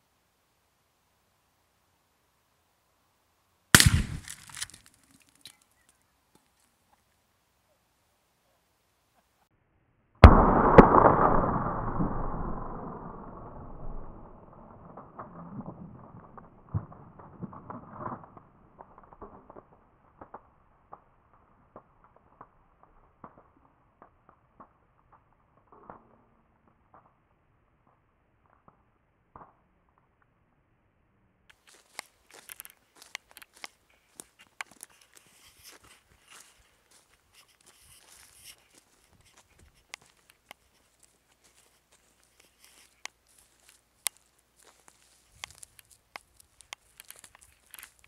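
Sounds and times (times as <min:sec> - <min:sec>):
gunshot: 0:03.8 - 0:04.6, 0:10.2 - 0:13.2
propane tank explosion: 0:03.8 - 0:04.6, 0:10.2 - 0:12.6
fire popping and crackling: 0:03.8 - 0:05.6, 0:10.2 - 0:27.3, 0:31.5 - 0:48.0.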